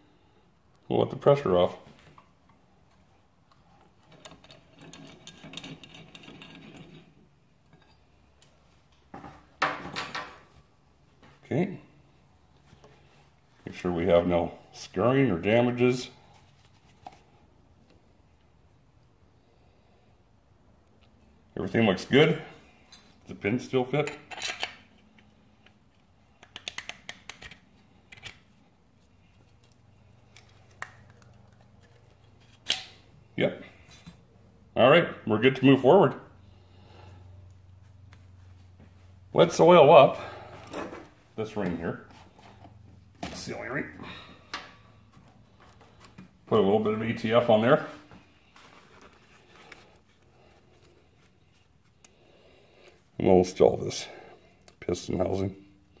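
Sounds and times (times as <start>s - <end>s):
metallic clicks and rattles: 4.0s - 7.1s.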